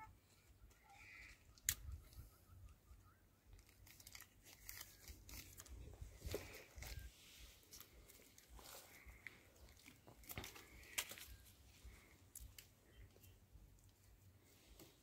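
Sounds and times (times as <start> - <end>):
light crackling handling noises: 3.5 - 15.0.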